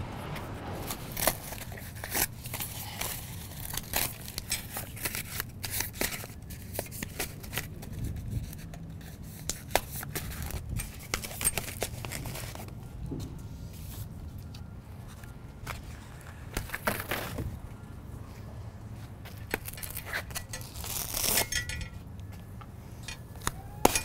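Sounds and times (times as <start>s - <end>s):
plastic wrap crinkling and tearing: 1.1s - 8.7s, 19.4s - 21.5s.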